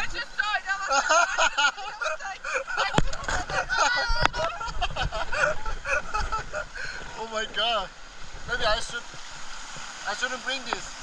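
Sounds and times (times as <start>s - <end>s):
muffled people chatting and laughing: 0.7s - 7.0s.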